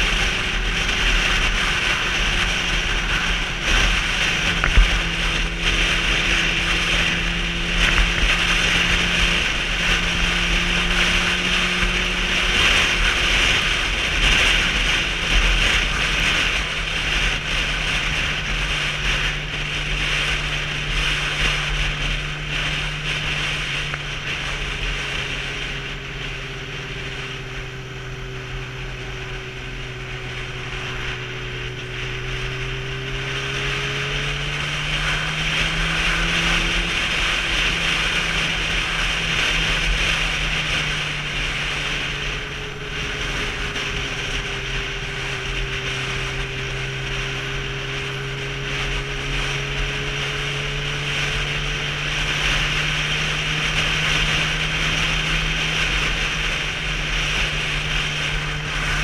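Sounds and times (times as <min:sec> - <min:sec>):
motorcycle engine running: 0:00.0 - 0:59.0
wind rush over microphone: 0:00.0 - 0:59.0.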